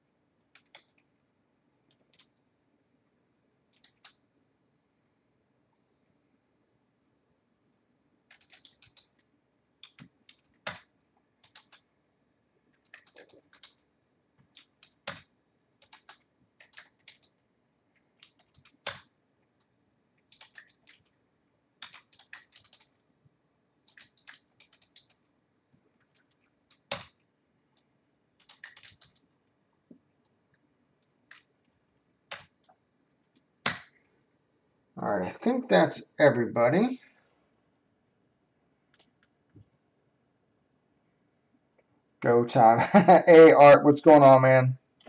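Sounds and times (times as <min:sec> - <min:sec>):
keyboard typing: 0:00.5 - 0:01.2, 0:01.9 - 0:02.4, 0:03.7 - 0:04.2, 0:08.2 - 0:11.9, 0:12.7 - 0:17.4, 0:18.0 - 0:21.2, 0:21.8 - 0:23.0, 0:23.8 - 0:25.3, 0:26.0 - 0:29.3, 0:30.5 - 0:34.0.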